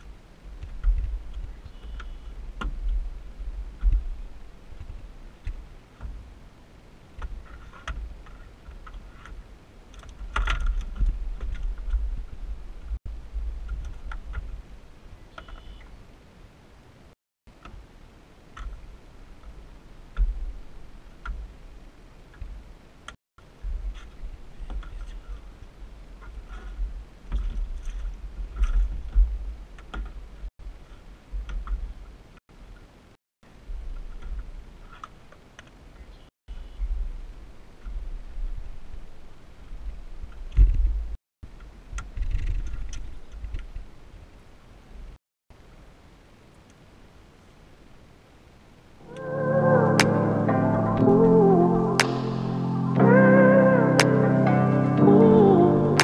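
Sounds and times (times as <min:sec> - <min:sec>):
wind rumbling on microphone: 0:00.0 - 0:17.1, 0:17.7 - 0:35.0, 0:35.9 - 0:45.2
gear clicking on fiberglass deck: 0:07.2 - 0:13.0.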